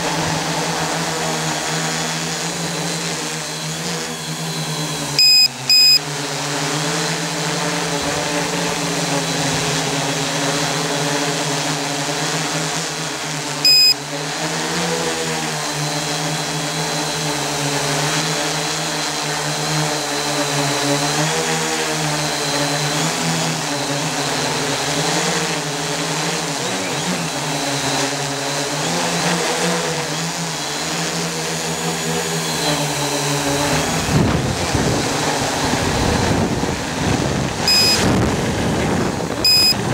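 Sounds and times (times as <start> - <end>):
drone motors and propellers: 0.0 - 39.9
loud high beep: 5.2 - 6.0, 13.7 - 14.0, 37.7 - 38.0, 39.5 - 39.8.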